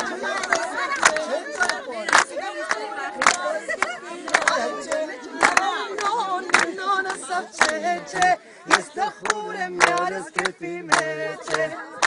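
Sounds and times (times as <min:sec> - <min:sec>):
group of people singing: 0:00.0 - 0:12.0.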